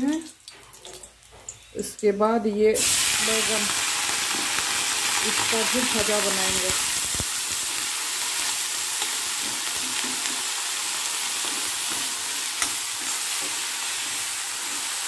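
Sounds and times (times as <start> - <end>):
vegetables sizzling in oil: 2.5 - 15.0.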